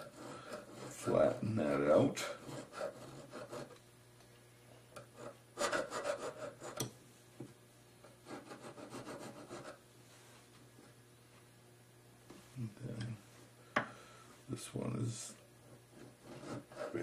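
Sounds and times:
needle file rasping on metal: 0.0 - 3.8, 5.0 - 6.9, 8.2 - 9.8, 15.9 - 17.0.

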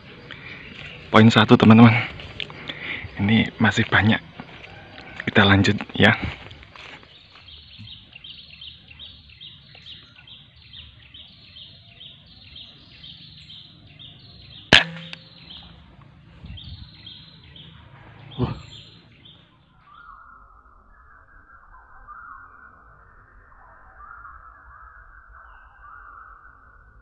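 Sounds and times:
bird chirping falling calls: 0.0 - 26.6
air rifle shots: 14.7 - 15.7.

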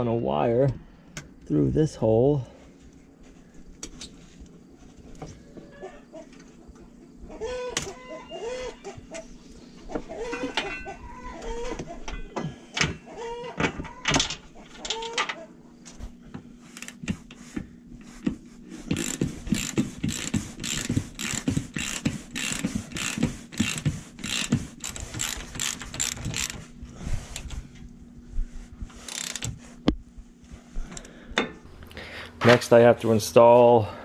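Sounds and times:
ratchet wrench clicking: 18.9 - 26.6, 29.0 - 29.5.

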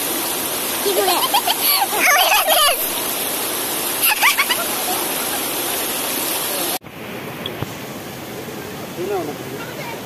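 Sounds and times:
water rushing: 0.0 - 10.0
voices calling out: 1.2 - 3.0.

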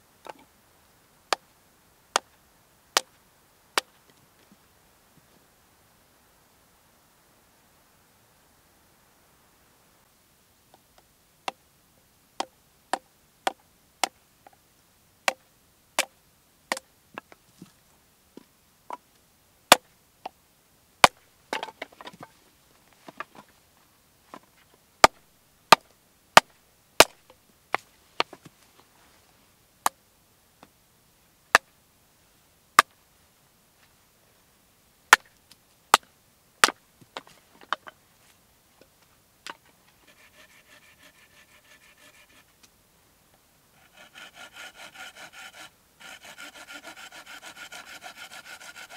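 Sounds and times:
hatchet chopping wood: 27.0 - 27.2.

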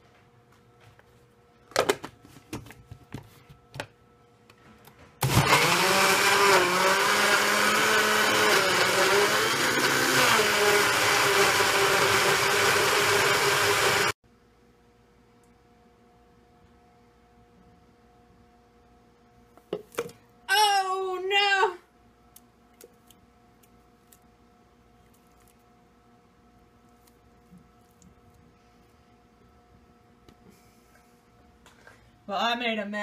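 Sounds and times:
blender whining: 5.2 - 14.2.

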